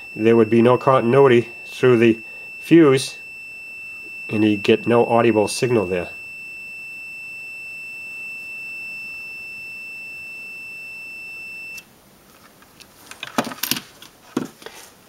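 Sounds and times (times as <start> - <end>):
multimeter continuity beep: 0.0 - 11.9.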